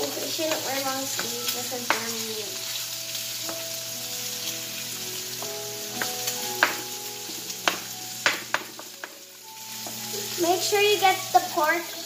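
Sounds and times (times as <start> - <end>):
meat sizzling in a frying pan: 0.0 - 12.0
spoon knocking against pan: 0.5 - 2.1, 6.0 - 6.9, 7.6 - 9.2.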